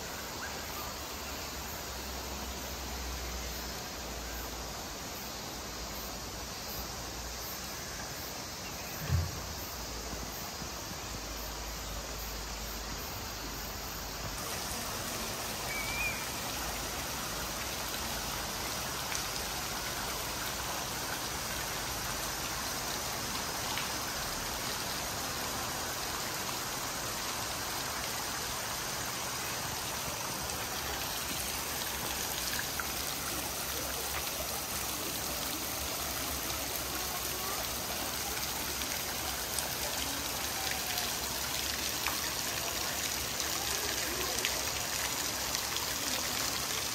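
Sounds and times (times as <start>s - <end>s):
water splashing from waterwheel: 14.0s - 46.9s.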